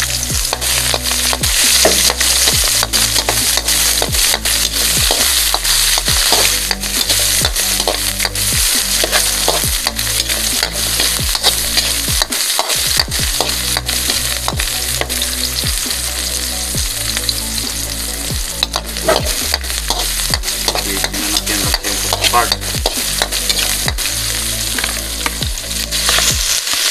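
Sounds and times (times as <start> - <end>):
onion sizzling in oil: 0.0 - 26.9.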